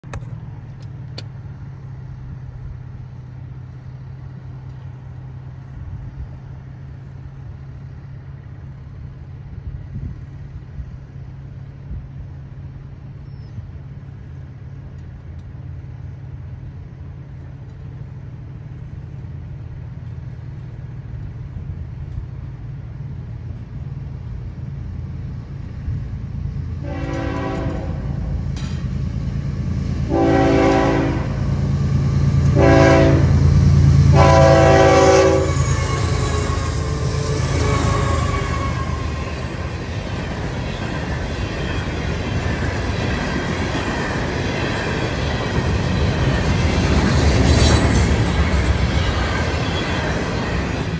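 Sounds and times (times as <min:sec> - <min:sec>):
train rumble: 0:00.0 - 0:50.9
locomotive horn blasts: 0:26.8 - 0:28.4, 0:30.0 - 0:31.6, 0:32.4 - 0:33.4, 0:34.1 - 0:39.5.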